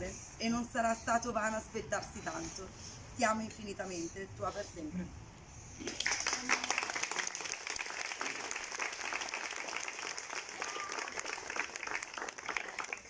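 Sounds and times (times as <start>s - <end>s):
small group applauding: 5.8s - 13.0s.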